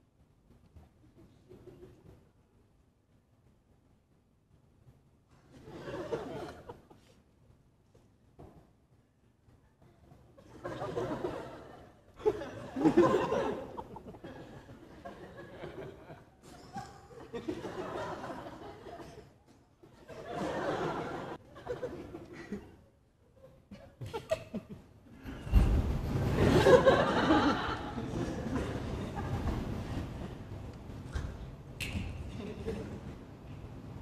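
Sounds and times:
audience laughing: 5.6 - 7.1, 10.4 - 19.3, 20.0 - 25.4, 26.1 - 30.4, 32.3 - 33.1.

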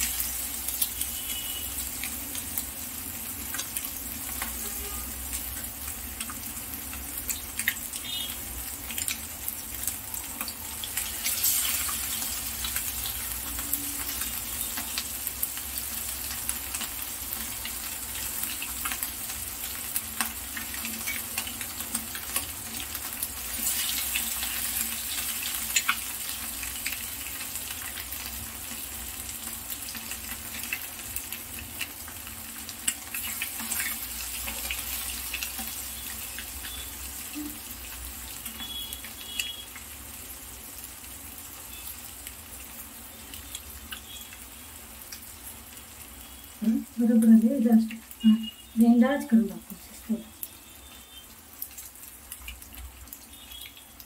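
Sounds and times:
oil sizzling and crackling: 0.0 - 54.0.

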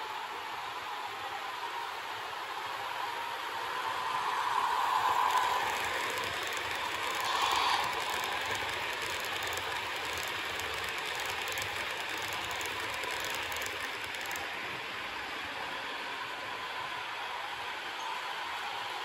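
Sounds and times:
model train rolling rattle: 4.5 - 14.7
wheels clicking over rail joints: 4.9 - 14.5.

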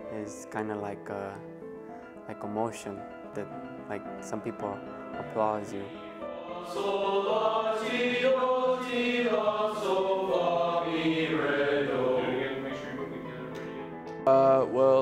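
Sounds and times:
boys' choir singing: 5.2 - 13.9.

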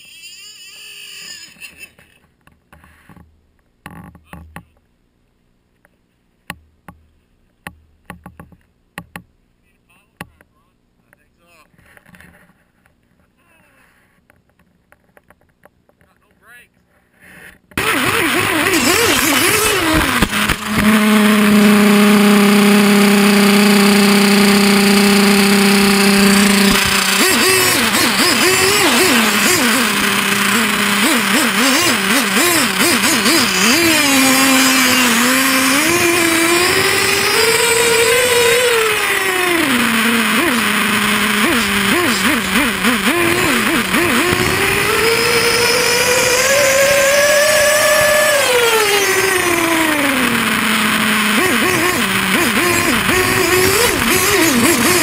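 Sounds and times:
model snowmobile motor humming: 17.8 - 55.0.

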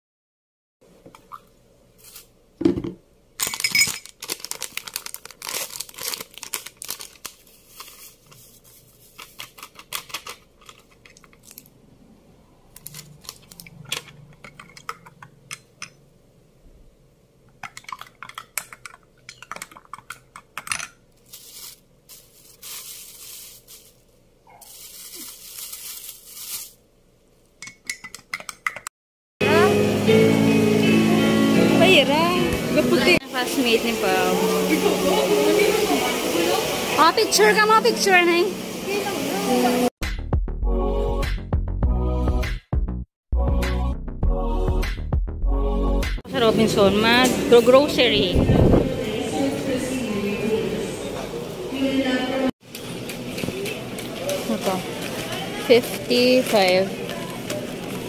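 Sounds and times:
plastic bag rustling: 2.0 - 2.3, 3.4 - 11.7, 12.7 - 14.0, 21.1 - 26.9, 52.8 - 58.0
plastic packaging crinkling and tearing: 3.4 - 11.7, 12.7 - 14.1, 21.2 - 26.8, 54.1 - 58.0.

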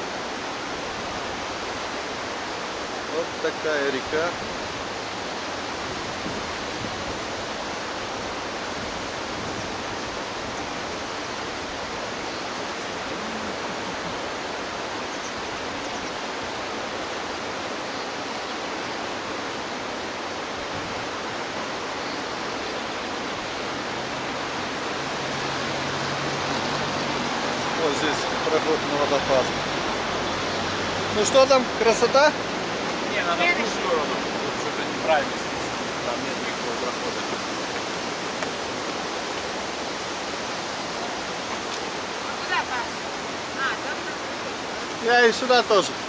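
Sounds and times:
river water rushing: 0.0 - 46.0.

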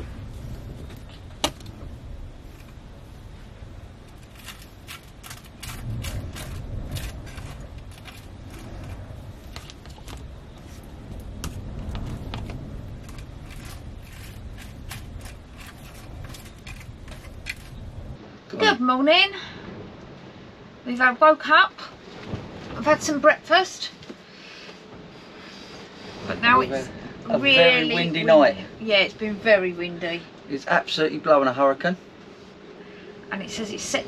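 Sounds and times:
storm wind rumble: 0.0 - 34.0
sharp ticks and rattles: 4.0 - 10.3.

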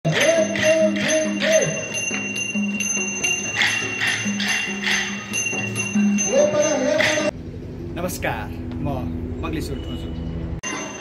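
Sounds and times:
cymbals ringing: 0.1 - 7.4, 9.6 - 11.0
wavering melodic line: 0.1 - 7.4.

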